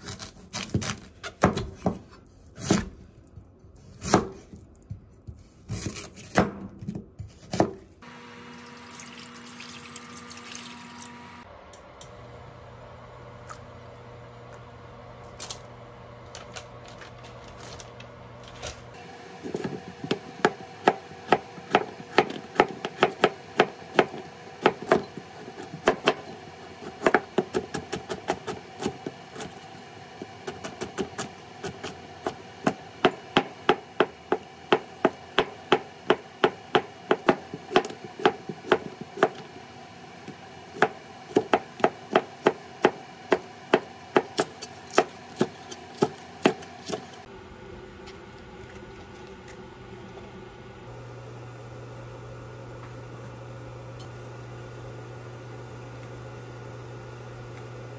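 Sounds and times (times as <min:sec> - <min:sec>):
knife chopping on cutting board: 0:00.0 - 0:02.9, 0:03.9 - 0:04.5, 0:05.7 - 0:07.8, 0:19.4 - 0:29.6, 0:30.2 - 0:39.5, 0:40.8 - 0:47.3.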